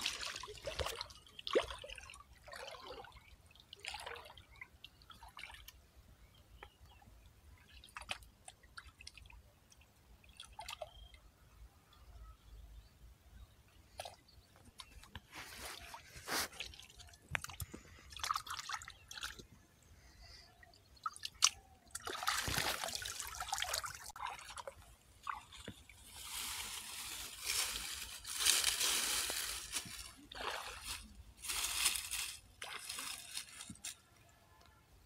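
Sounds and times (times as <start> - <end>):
muddy water splashing: 0.0 - 5.7, 14.8 - 19.6, 21.0 - 33.8
dry straw rustling: 15.3 - 16.7, 26.0 - 34.0.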